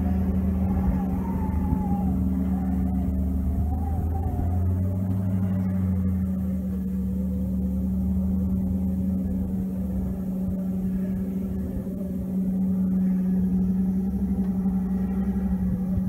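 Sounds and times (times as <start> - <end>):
truck engine droning: 0.0 - 16.0.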